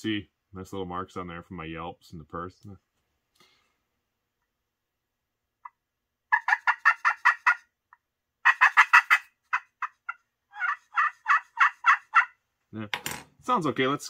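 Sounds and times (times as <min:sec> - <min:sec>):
turkey call yelps: 0:05.6 - 0:07.7, 0:08.4 - 0:12.4.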